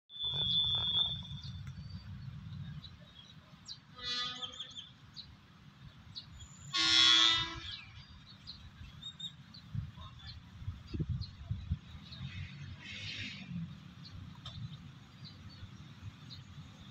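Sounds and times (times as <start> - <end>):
locomotive horn: 0.2 - 1.4, 4.0 - 4.7, 6.7 - 8.0.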